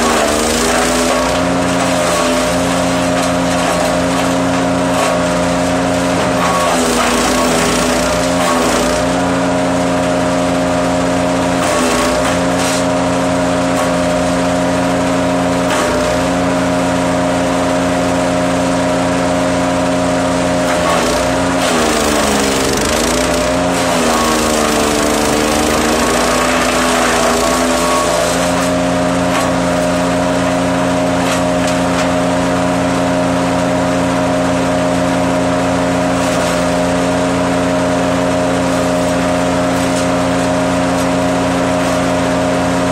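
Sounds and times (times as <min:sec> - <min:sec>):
wood chipper running: 0:00.0 - 0:42.9.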